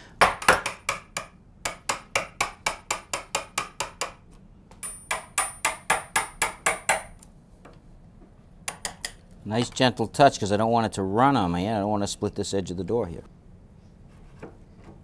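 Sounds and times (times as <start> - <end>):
hammer tapping wood chisel: 0.2 - 4.2, 4.8 - 7.2, 8.7 - 9.2.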